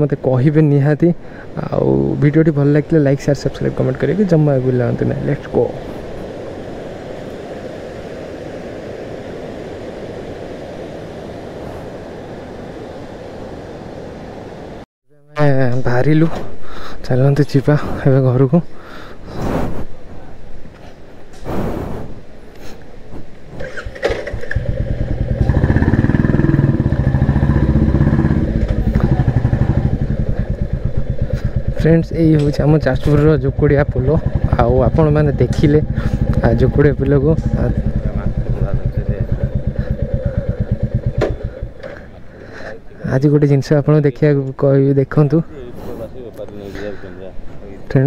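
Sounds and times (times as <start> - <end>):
motorcycle engine rumbling: 23.6 - 42.9.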